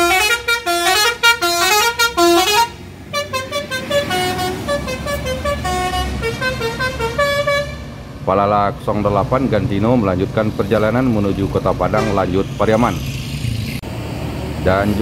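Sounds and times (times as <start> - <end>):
multi-tone musical horn: 0.0 - 7.9
bus engine running: 0.0 - 15.0.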